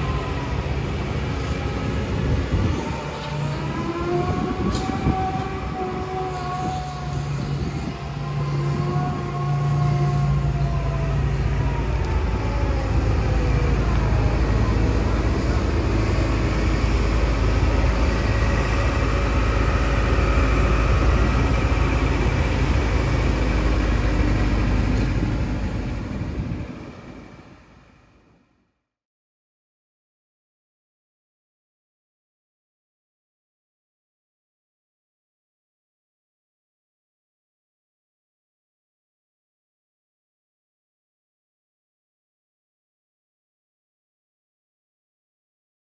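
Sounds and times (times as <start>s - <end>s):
excavator diesel engine running: 0.0s - 28.4s.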